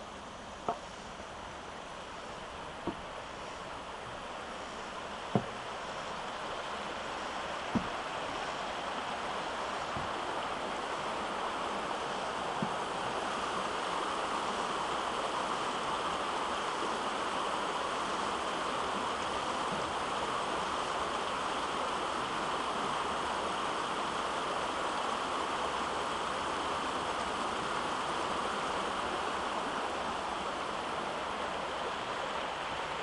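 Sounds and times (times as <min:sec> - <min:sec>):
water rushing over rocks: 0:00.0 - 0:33.0
faint knocks: 0:05.3 - 0:05.6, 0:07.7 - 0:08.0.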